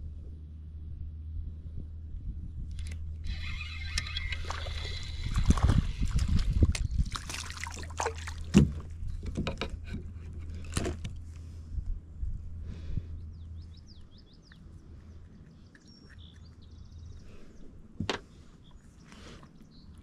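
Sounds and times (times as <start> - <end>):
low rumble: 0.0 - 7.2, 8.7 - 15.7
spinning reel winding: 2.8 - 6.0
fish splashing in water: 4.2 - 8.8.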